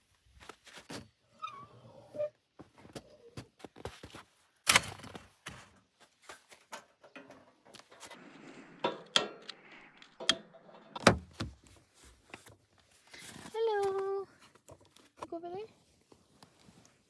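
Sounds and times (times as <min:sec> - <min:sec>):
camp stove set down: 0:06.6 - 0:08.2.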